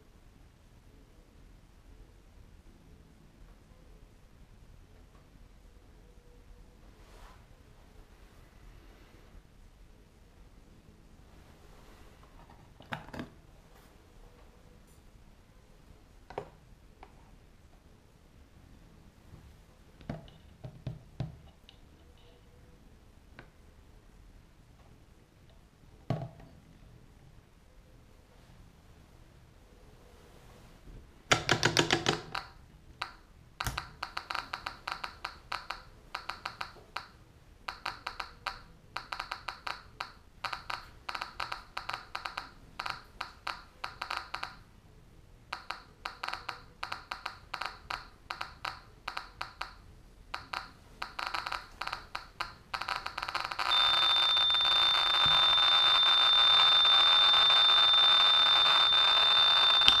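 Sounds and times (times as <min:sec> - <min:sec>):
geiger counter clicking: 0:31.3 - 0:44.7, 0:45.5 - 1:00.0
high warning tone: 0:50.4 - 1:00.0.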